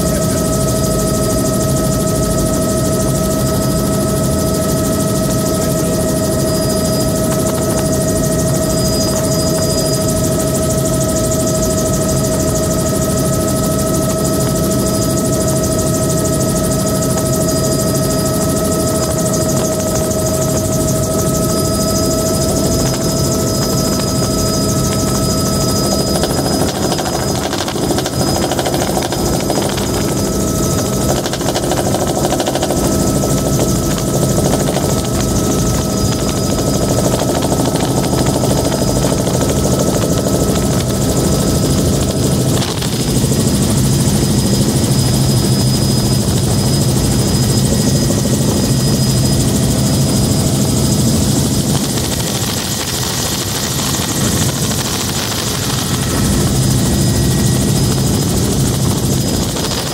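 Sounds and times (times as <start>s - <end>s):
helicopter rotor rumble: 0.0s - 59.9s
high turbine whine: 0.0s - 59.9s
wind noise: 18.4s - 59.9s.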